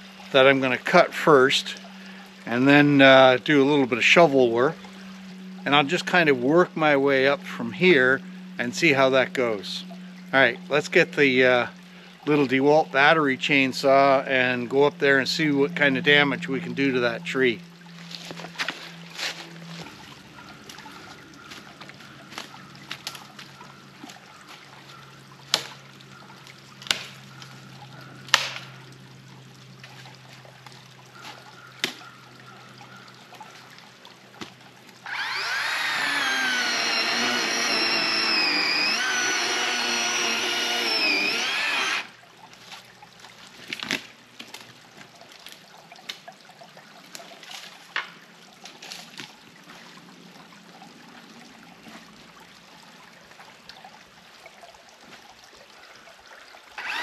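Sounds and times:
stream trickling: 0.0 - 57.0
sharp knocks and snaps: 28.3 - 28.8
electric chainsaw cutting wood: 35.0 - 42.2, 56.8 - 57.0.

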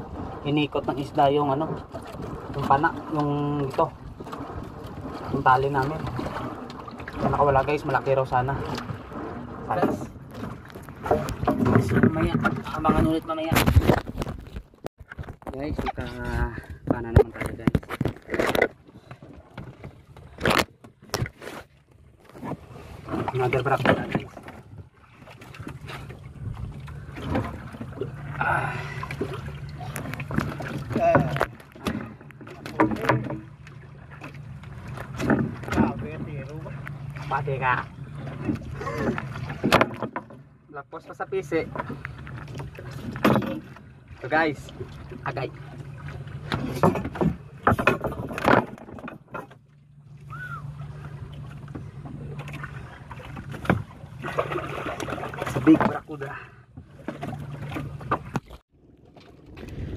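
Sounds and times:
boat engine humming: 0.0 - 13.3, 15.9 - 59.9
rush of water: 0.0 - 14.3, 22.2 - 40.4, 50.1 - 59.9
knocks against wooden hull: 9.7 - 18.8, 19.5 - 24.9, 29.2 - 37.0, 37.8 - 40.5, 41.6 - 43.8, 46.4 - 49.6, 51.7 - 56.1
knocks on wooden boat: 39.5 - 40.4.

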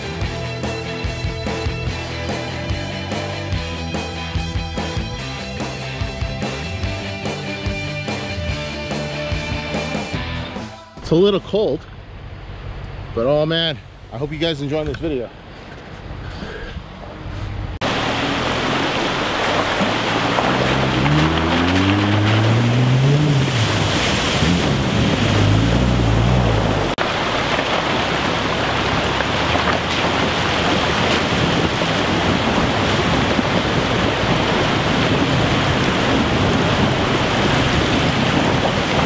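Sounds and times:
engine revving: 17.8 - 39.0
rushing river water: 17.8 - 39.0
wind on microphone: 22.0 - 26.9, 28.9 - 39.0.

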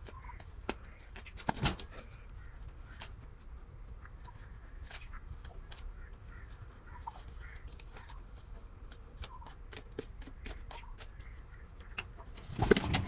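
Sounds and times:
short pigeon calls: 0.0 - 8.4
pigeons tapping and clicking: 0.0 - 13.0.

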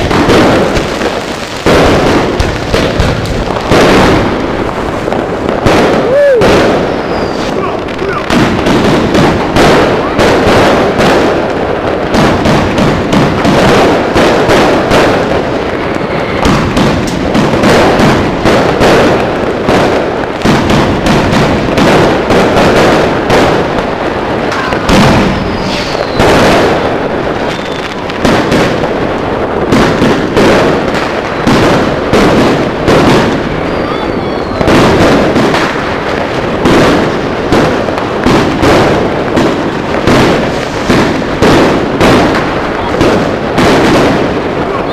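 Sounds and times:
fireworks crackling: 0.0 - 44.9
fireworks launching and banging: 0.0 - 44.9.

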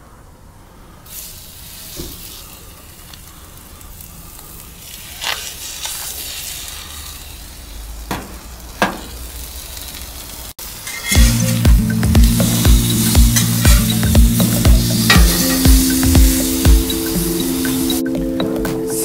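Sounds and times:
meat sizzling on hot plate: 4.5 - 18.0.

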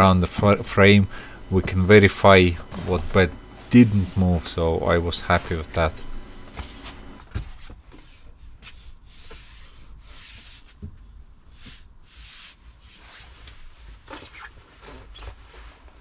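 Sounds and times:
hand rubbing over furniture: 0.0 - 7.2.

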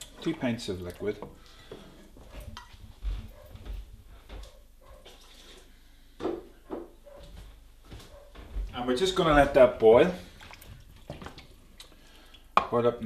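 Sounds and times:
faint liquid sounds from pot: 0.0 - 3.4, 8.9 - 13.0.

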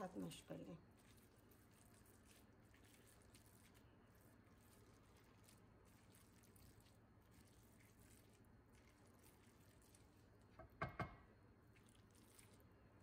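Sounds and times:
potato masher squishing food: 0.0 - 10.8.

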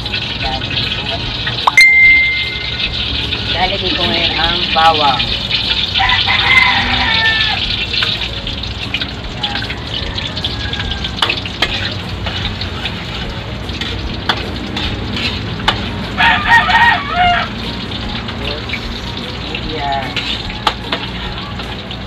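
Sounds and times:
garlic sizzling in oil: 0.0 - 22.0
rooster crowing: 6.0 - 7.7, 9.4 - 11.4, 16.2 - 17.6.

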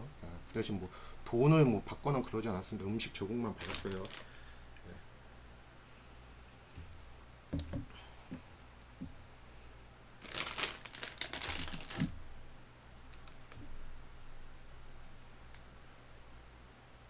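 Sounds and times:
plastic packet crinkling: 3.5 - 4.4, 10.2 - 12.1.

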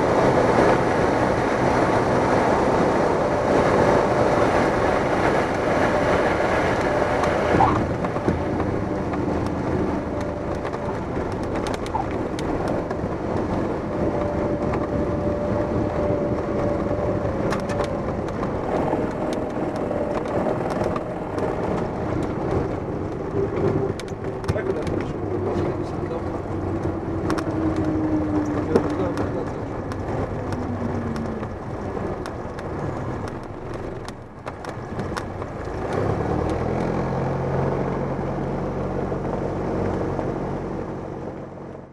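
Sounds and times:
propeller plane engine in cockpit: 0.0 - 41.9
wheels rolling on runway: 0.0 - 41.9.

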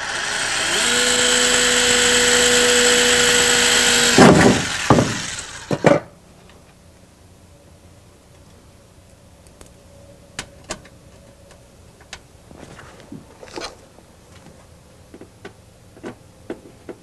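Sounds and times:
faint steady hum: 5.6 - 17.0.

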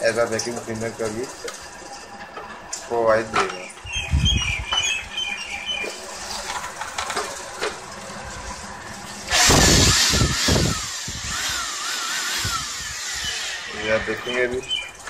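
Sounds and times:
blower motor running: 0.0 - 15.0
rush of air: 8.3 - 11.6.

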